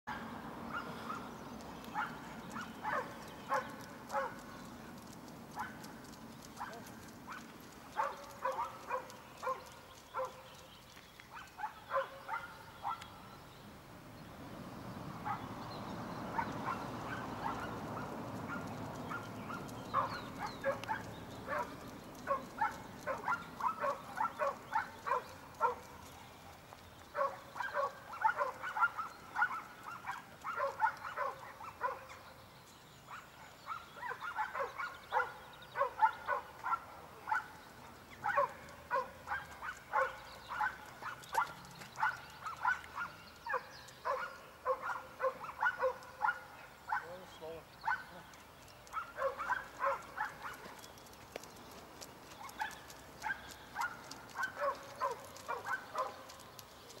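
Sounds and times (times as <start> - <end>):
dog barking: 0.1 - 1.3, 1.9 - 4.4, 8.0 - 10.4, 11.4 - 13.0, 15.2 - 15.5, 16.3 - 25.9, 27.2 - 32.2, 33.1 - 37.6, 38.2 - 47.2, 47.8 - 48.2, 49.0 - 50.7, 52.5 - 56.2.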